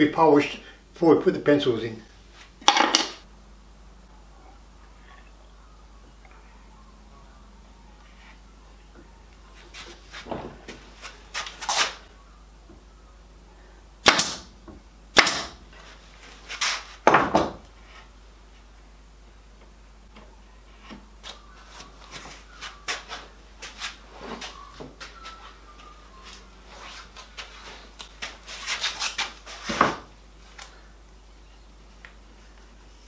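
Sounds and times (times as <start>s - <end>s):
wood knocking on wood: 17.0s - 17.6s.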